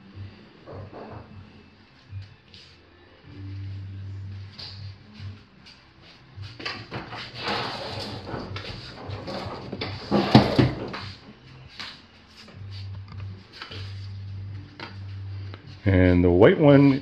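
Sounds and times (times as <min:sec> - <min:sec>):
close rustling and knocking: 0:06.5 - 0:14.0.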